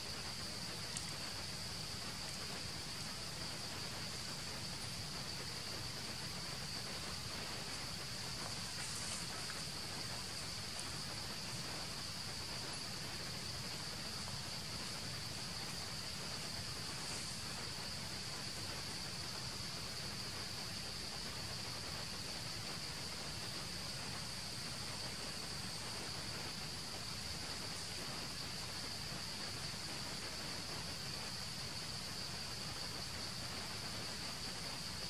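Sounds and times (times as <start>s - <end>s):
faint outdoor hiss: 0.0s - 35.0s
insects chirring: 0.0s - 35.0s
faint ticks: 0.1s - 19.7s.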